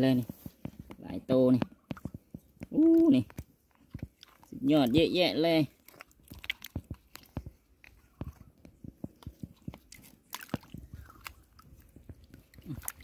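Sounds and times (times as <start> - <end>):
mussel shells clicking and scraping: 0.0 - 13.0
small water splashes: 1.6 - 8.4, 9.1 - 13.0.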